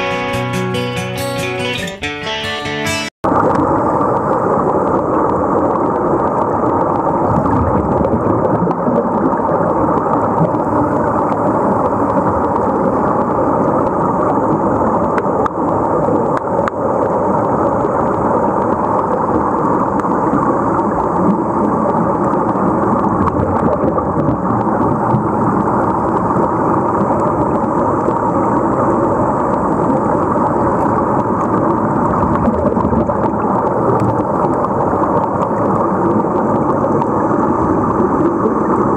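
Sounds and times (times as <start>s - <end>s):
underwater air bubbling: 3.3s - 38.9s.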